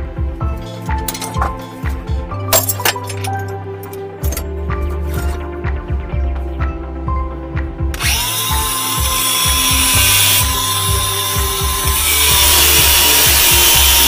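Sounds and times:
background music: 0:00.0 - 0:14.0
angle grinder grinding steel: 0:08.0 - 0:14.0.

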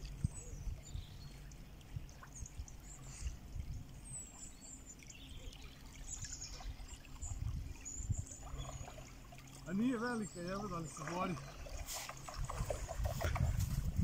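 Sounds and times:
small waves washing on sand: 0:10.6 - 0:13.8.

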